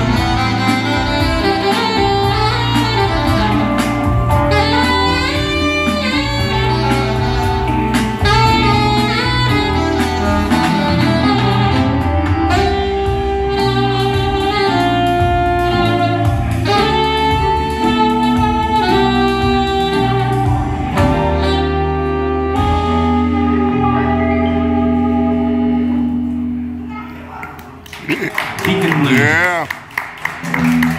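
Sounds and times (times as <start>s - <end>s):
sustained bass line: 0.0s - 26.8s
saxophone solo: 0.0s - 27.1s.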